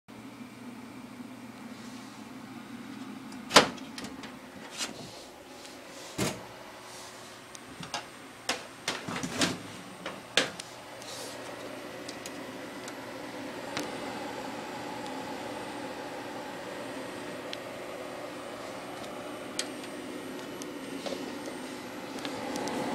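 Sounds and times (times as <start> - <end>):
steady low hum: 0.1 - 22.9
metal computer case clicks and knocks: 7.8 - 10.6.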